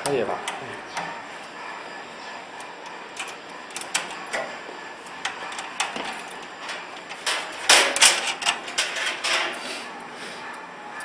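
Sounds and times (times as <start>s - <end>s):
metal clatter: 5.2s - 9.6s.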